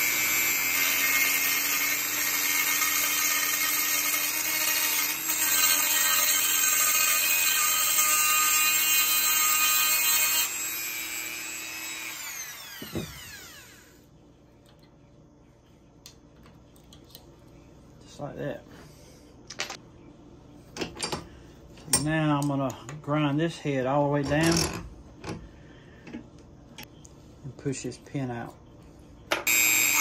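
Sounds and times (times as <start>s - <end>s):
rotary tool grinding metal: 0.0s - 14.0s, 29.5s - 30.0s
rotary tool spinning down: 11.6s - 13.9s.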